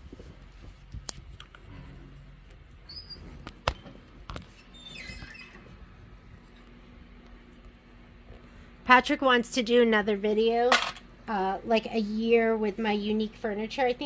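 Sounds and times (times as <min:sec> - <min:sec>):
brief squeak: 0:02.9 - 0:03.3.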